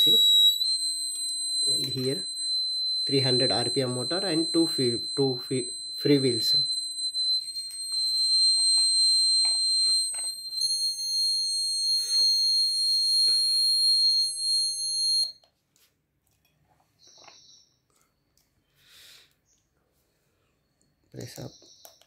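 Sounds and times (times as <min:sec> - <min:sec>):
faint tones: 0:00.0 - 0:14.4
high-pitched alarm beep: 0:00.0 - 0:15.3.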